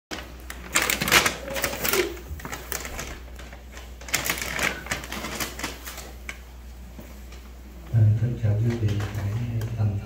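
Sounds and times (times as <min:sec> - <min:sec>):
rapid clicking and rattling: 0:00.1 - 0:06.0.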